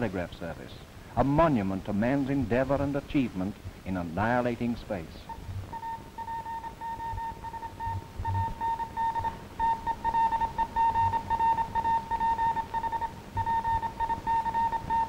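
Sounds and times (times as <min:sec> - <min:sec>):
film soundtrack hiss: 0:00.0 - 0:15.0
morse code beeps: 0:05.3 - 0:15.0.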